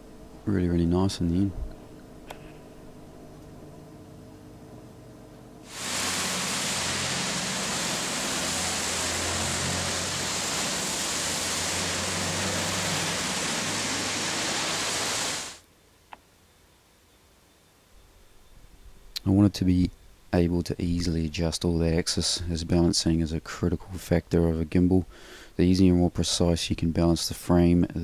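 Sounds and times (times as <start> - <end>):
car tyres on wet street: 5.7 - 15.6
low traffic rumble: 5.7 - 15.6
rain hissing: 5.7 - 15.6.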